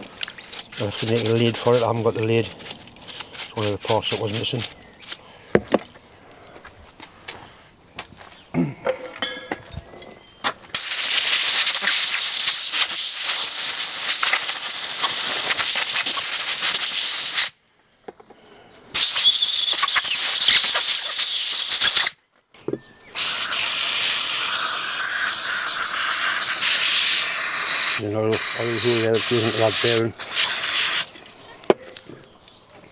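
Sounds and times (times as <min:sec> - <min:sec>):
aerosol spray can hissing: 0:00.0 - 0:04.7, 0:10.8 - 0:17.6, 0:19.0 - 0:22.2, 0:23.2 - 0:31.1
knocks of handling parts: 0:05.5 - 0:06.0, 0:08.8 - 0:10.6
compressed air blow gun hiss: 0:10.7 - 0:17.6, 0:18.9 - 0:22.2, 0:23.2 - 0:31.1.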